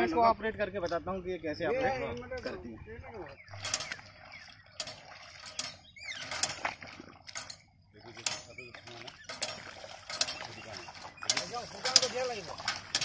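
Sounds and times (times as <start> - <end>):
metallic clacks of transplanter: 3.5 - 13.0.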